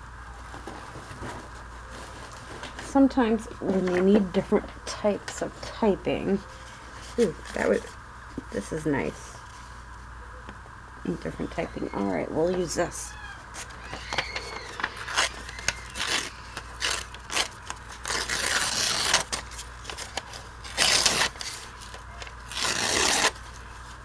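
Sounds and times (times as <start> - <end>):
paper crinkling and ripping: 13.5 - 24.0.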